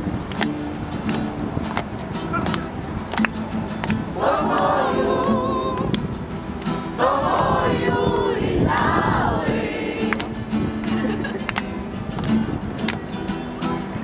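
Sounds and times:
acoustic guitar: 0:00.0 - 0:14.0
group of young voices singing: 0:04.0 - 0:06.1, 0:06.7 - 0:10.5.

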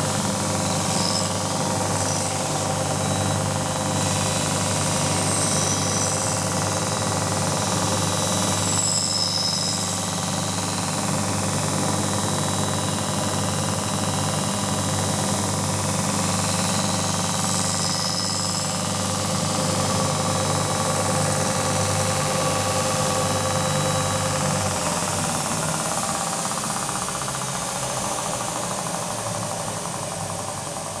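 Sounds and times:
grinding wheel on steel blade: 0:00.0 - 0:28.0
motor hum: 0:00.0 - 0:31.0.

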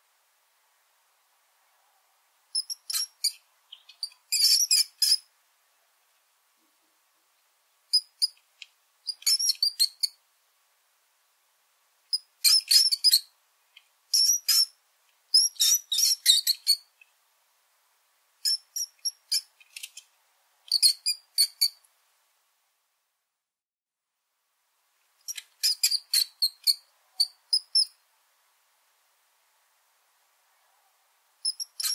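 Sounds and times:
rats squeaking: 0:02.6 - 0:05.3, 0:07.9 - 0:08.4, 0:09.1 - 0:10.2, 0:12.1 - 0:13.3, 0:14.1 - 0:17.0, 0:18.4 - 0:20.1, 0:20.7 - 0:21.8, 0:25.2 - 0:28.0, 0:31.4 - 0:31.9.

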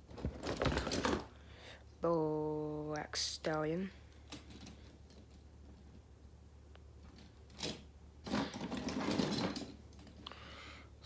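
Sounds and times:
toy trucks clattering in plastic drawer: 0:07.5 - 0:10.2.

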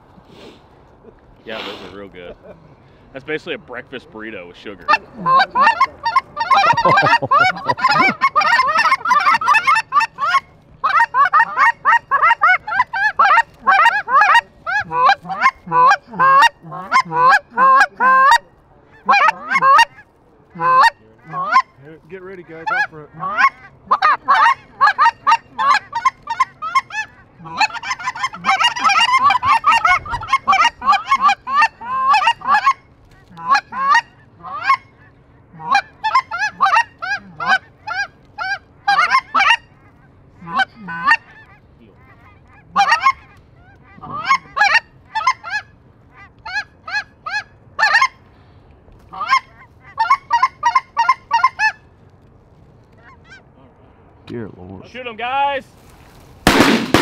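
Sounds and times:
goose yelping and honking: 0:04.8 - 0:18.4, 0:19.0 - 0:20.0, 0:20.6 - 0:21.8, 0:22.5 - 0:48.2, 0:49.1 - 0:51.8.

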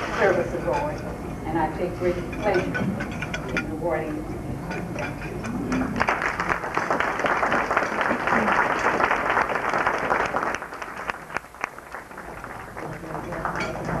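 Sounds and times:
voices: 0:00.1 - 0:05.9
audience applauding: 0:06.0 - 0:14.0.

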